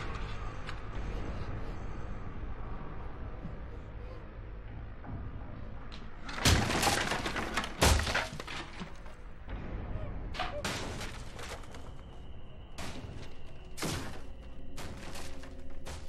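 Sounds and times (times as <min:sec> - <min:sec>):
violent smashing and breaking: 0:06.3 - 0:09.2, 0:10.6 - 0:12.2, 0:12.8 - 0:16.0.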